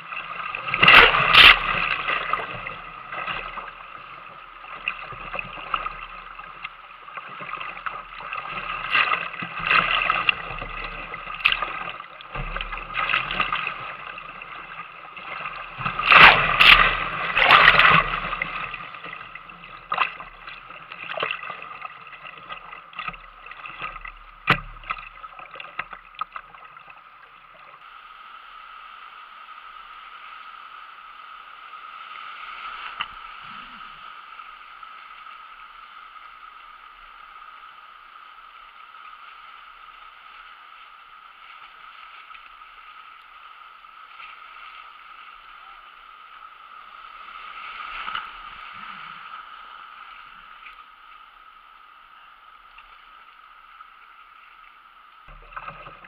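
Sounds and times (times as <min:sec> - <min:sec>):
paddle stroke splashes: 0:00.0 - 0:27.7.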